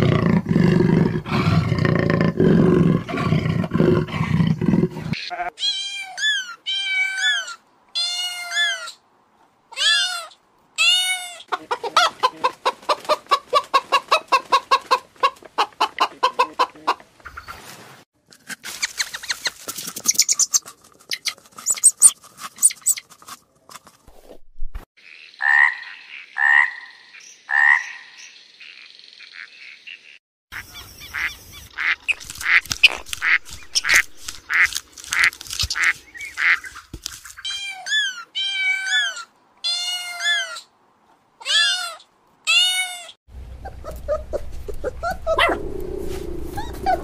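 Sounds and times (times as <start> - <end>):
sparrows chirping: 27.2 - 34.4
flamingos calling: 31.2 - 36.7
animal calls: 41.4 - 47.0.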